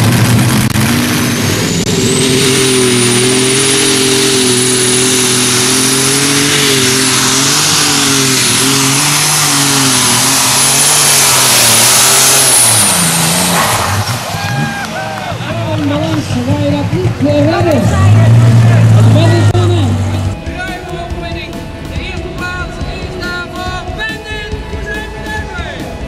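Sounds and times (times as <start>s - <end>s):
high whine: 0.0s - 15.4s
tractor engine at full throttle: 0.0s - 26.0s.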